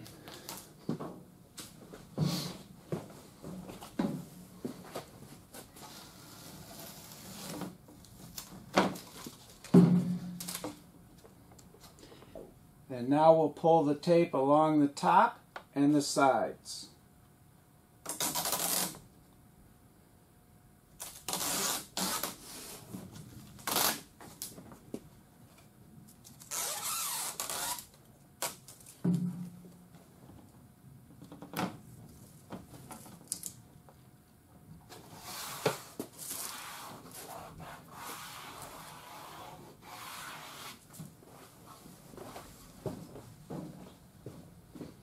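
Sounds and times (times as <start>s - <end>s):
masking tape peeling: 5.8s - 7.7s, 10.4s - 10.8s, 18.0s - 19.0s, 21.0s - 22.8s, 23.6s - 24.5s, 26.2s - 29.0s, 35.2s - 40.8s.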